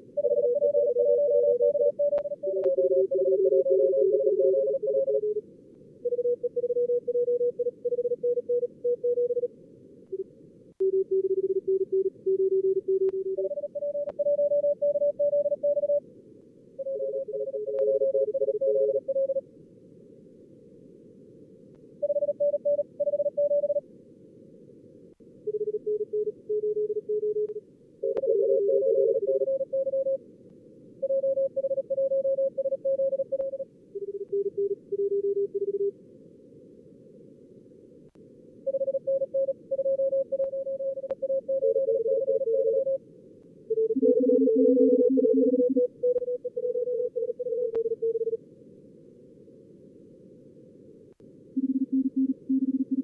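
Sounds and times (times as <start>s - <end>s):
morse code tones: 0.2s - 5.4s, 43.7s - 48.3s.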